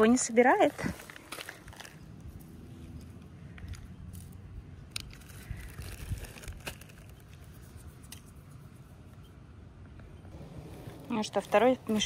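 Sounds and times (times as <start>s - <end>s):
dry nuts and leaves crunching: 0.7s - 7.7s.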